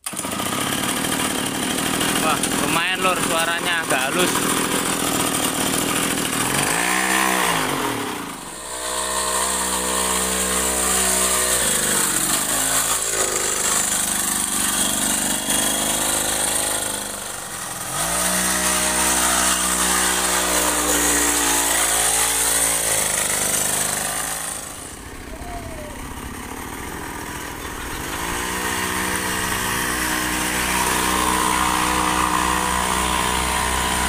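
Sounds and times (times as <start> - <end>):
small two-stroke engine revving: 0.0 - 34.0.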